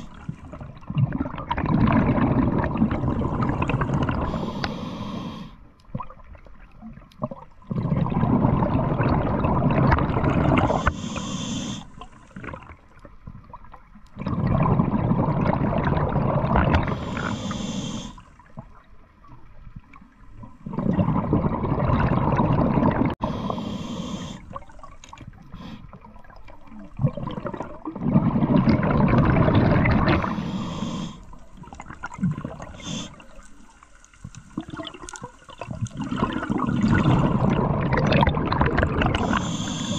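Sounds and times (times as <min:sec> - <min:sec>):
exhaled bubbles underwater: 0:00.0 - 0:39.9
regulator inhale hiss: 0:04.2 - 0:05.7, 0:10.6 - 0:12.4, 0:16.8 - 0:18.4, 0:23.2 - 0:24.6, 0:25.5 - 0:26.0, 0:30.1 - 0:31.5, 0:32.7 - 0:33.9, 0:39.2 - 0:39.9.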